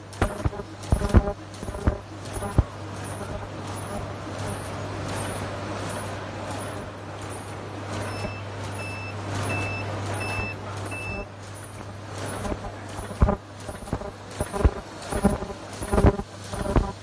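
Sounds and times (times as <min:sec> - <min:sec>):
machine humming and clattering: 0:00.0 - 0:17.0
short high beeps: 0:08.1 - 0:11.3.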